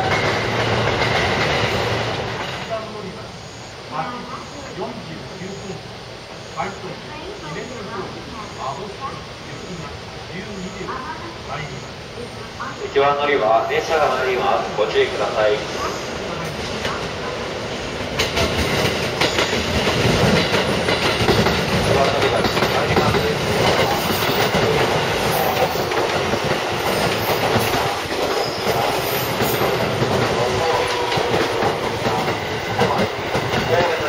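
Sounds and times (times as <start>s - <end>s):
wheels clacking over rail joints: 0.0s - 3.0s, 16.4s - 34.0s
electric train rolling rumble: 0.0s - 34.0s.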